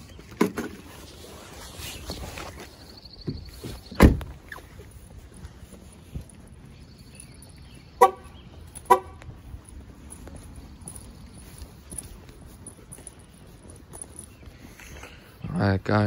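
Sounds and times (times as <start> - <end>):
car horn honks: 8.0 - 9.3.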